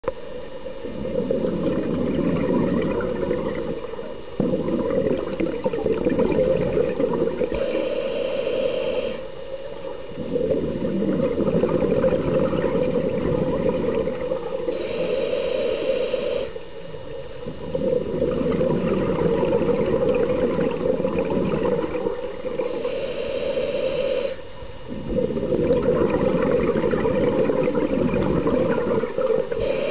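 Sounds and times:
regulator bubbling underwater: 0:00.0 - 0:08.0, 0:09.1 - 0:29.9
regulator hiss: 0:00.1 - 0:29.9.

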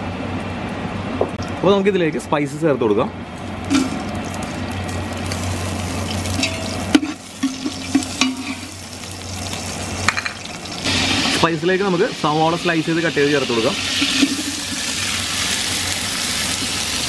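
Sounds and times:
spices sizzling in hot oil: 0:03.7 - 0:17.0.

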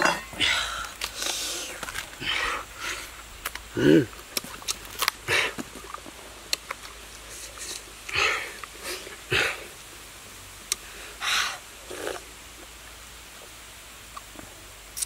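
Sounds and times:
coconut husk ripping: 0:03.3 - 0:08.8.

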